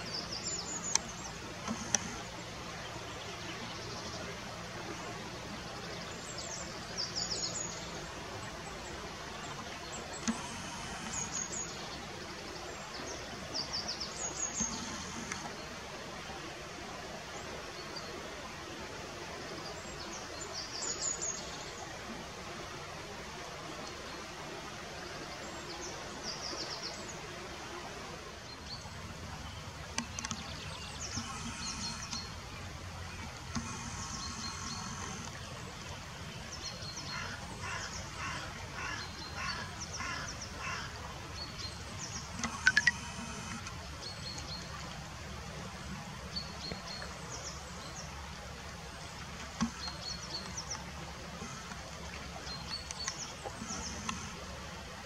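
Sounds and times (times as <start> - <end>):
river water running over stones: 0.0 - 55.0
sharp clicks: 0.9 - 2.2, 42.3 - 43.8
small birds chirping: 28.7 - 44.7.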